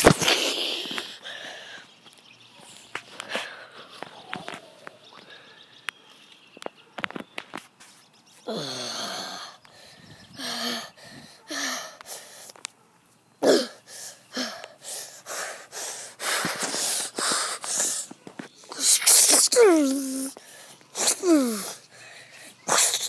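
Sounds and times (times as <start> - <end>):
breathy huffs and wheezes: 8.4 - 12.7, 13.4 - 19.0, 19.9 - 23.0
person grunting: 8.5 - 9.4.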